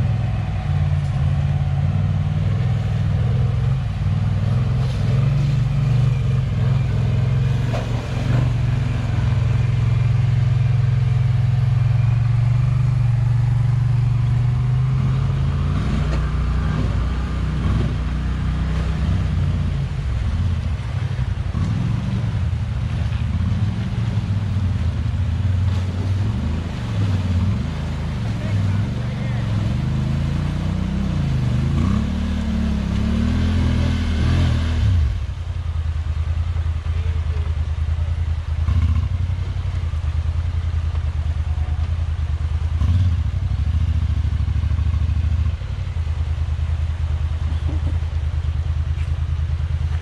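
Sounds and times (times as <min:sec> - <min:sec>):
off-road vehicle engines: 0:00.0 - 0:50.0.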